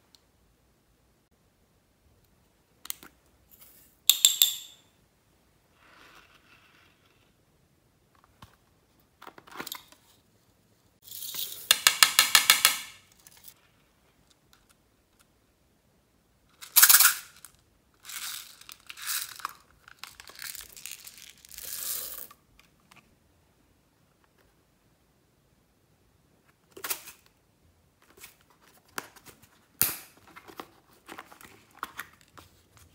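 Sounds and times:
sequins rattling in plastic cases: 16.6s - 22.3s.

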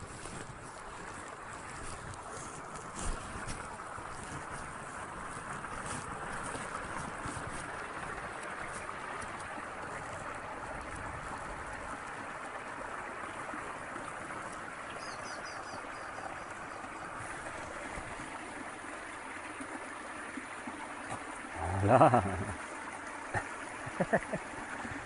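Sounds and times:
stream running over rocks: 0.0s - 25.0s.

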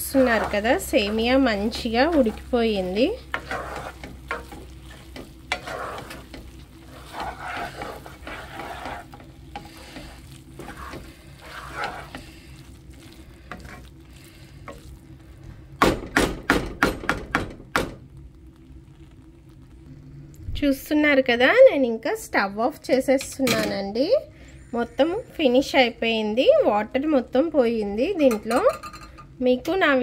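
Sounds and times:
spatula scraping a pan: 0.0s - 15.1s
food sizzling: 0.0s - 22.5s, 23.4s - 30.0s.

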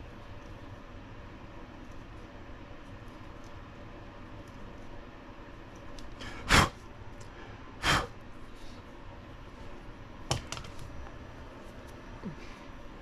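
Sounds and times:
sharp breath puffs: 6.2s - 8.9s.

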